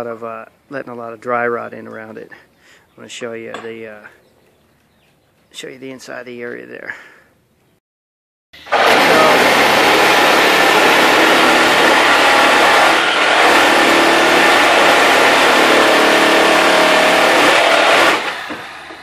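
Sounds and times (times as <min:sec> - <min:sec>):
power tool cutting nails: 0:08.6 - 0:19.0.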